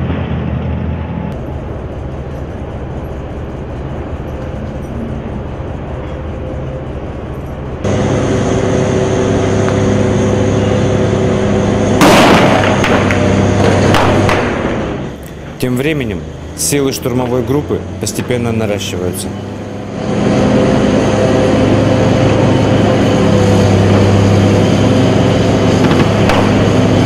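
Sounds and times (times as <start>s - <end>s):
heavy vehicle engine humming: 0.0s - 27.0s
loud blast: 7.8s - 15.2s, 19.8s - 27.0s
gunfire cracks: 12.0s - 14.8s, 25.8s - 26.7s.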